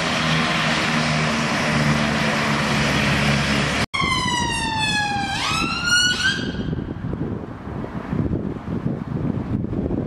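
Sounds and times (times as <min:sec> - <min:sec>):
siren wailing: 0:04.0 - 0:06.9.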